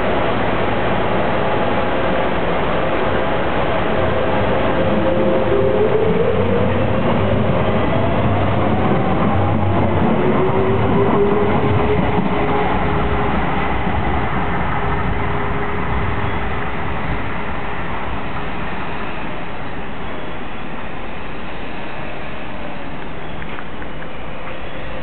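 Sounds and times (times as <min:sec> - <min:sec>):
train running noise: 0:00.0 - 0:25.0.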